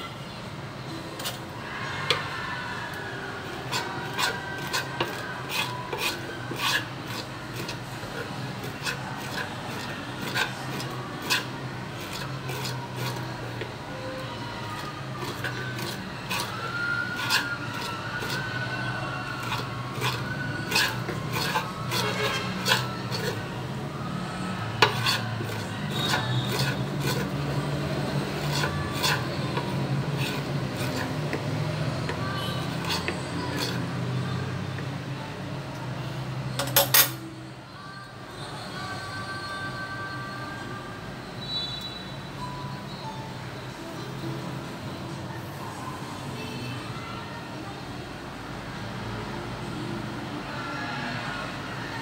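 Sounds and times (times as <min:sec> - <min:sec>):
spoon scraping on wooden board: 0:01.2 - 0:02.4, 0:03.5 - 0:13.8, 0:14.7 - 0:23.5, 0:24.7 - 0:34.0.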